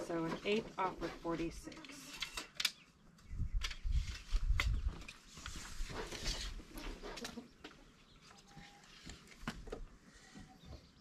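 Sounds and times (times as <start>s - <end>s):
chickens clucking: 6.7s - 8.4s.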